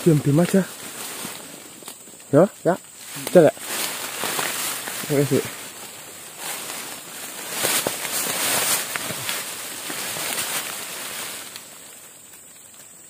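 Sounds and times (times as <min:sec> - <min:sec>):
leaves and undergrowth rustling: 0:00.0 - 0:13.0
faint snaps of stems: 0:00.4 - 0:02.3, 0:06.4 - 0:13.0.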